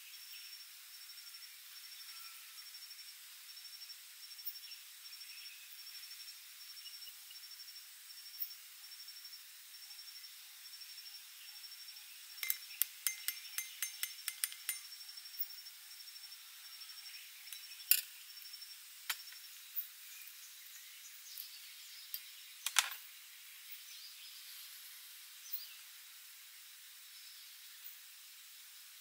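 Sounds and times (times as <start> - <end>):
insect trilling: 0.5 - 22.8
metal cocktail shaker clinking: 12.4 - 14.9.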